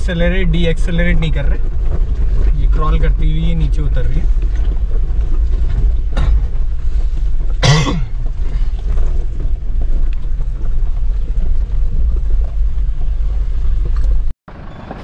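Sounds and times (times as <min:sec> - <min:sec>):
low engine and drivetrain rumble: 0:00.0 - 0:15.0
cough: 0:07.6 - 0:08.2.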